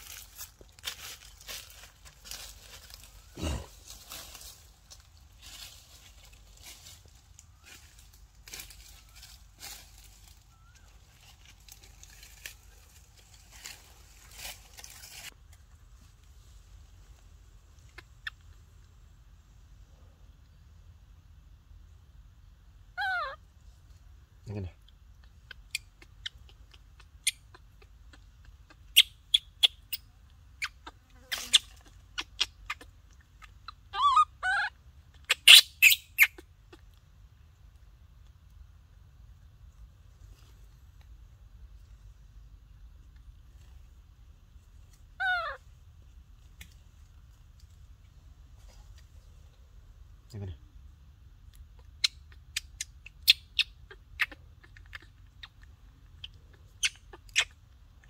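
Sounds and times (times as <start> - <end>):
faint rustling and crackling: 0.0 - 19.0, 39.6 - 50.4
soft chirp: 8.7 - 11.4
baby monkey squeaky calls: 17.9 - 18.5, 22.9 - 23.4, 25.2 - 36.9, 45.1 - 45.7, 51.6 - 57.8.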